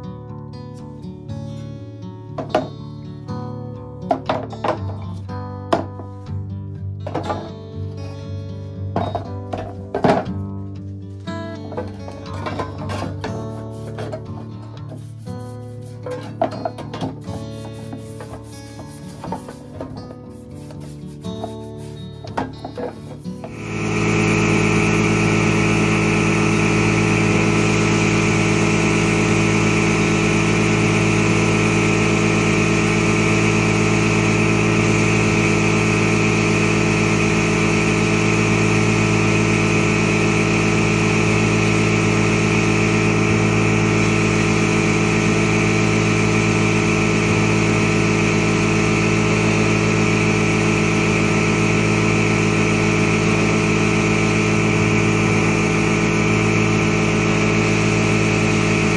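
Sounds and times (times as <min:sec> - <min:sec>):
machine humming with hiss: 0:22.8 - 0:58.9.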